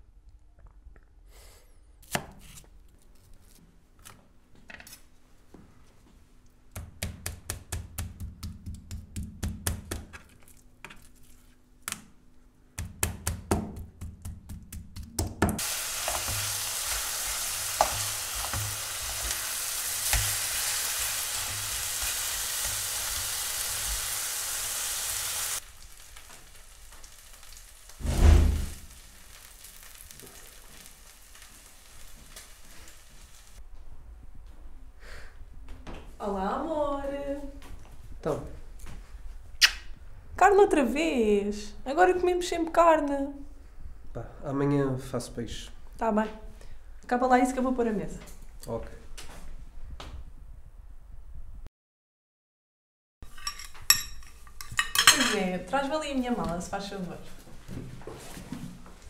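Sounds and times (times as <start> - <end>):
knife chopping meat on board: 6.7 - 10.2
meat sizzling in a frying pan: 15.6 - 33.6
loud low thump: 28.0 - 28.9.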